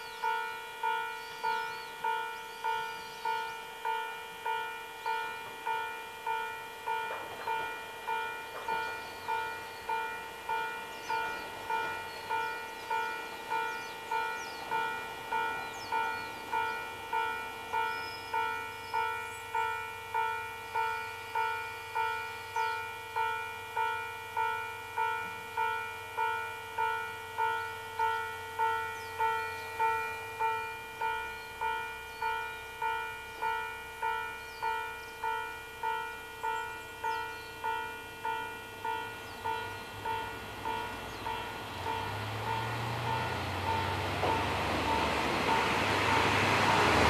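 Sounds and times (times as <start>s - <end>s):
faint low train engine hum: 0.0s - 47.0s
level crossing alarm ringing: 0.0s - 47.0s
small birds chirping: 10.6s - 16.9s, 34.4s - 35.4s, 38.9s - 42.1s.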